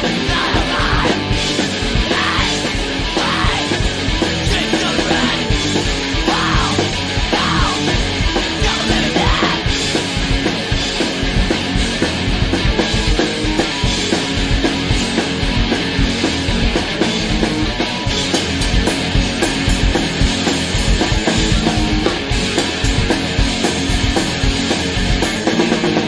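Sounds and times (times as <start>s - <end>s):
hardcore punk band playing: 0.0s - 26.0s.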